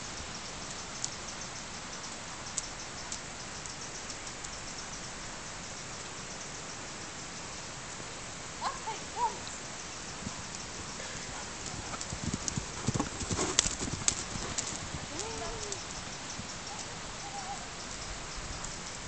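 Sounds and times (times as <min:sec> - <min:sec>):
horse hoofbeats cantering: 0:10.2 - 0:16.5.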